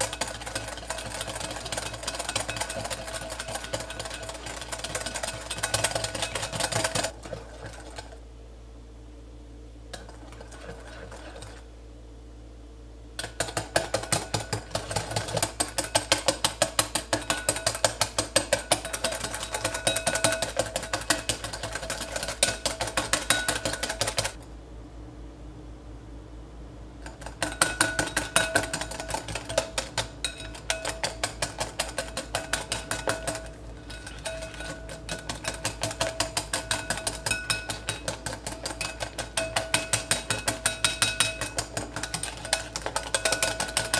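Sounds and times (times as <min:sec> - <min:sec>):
wire whisk clicking in glass bowl: 0:00.0 - 0:07.1, 0:13.2 - 0:24.4, 0:27.0 - 0:43.9.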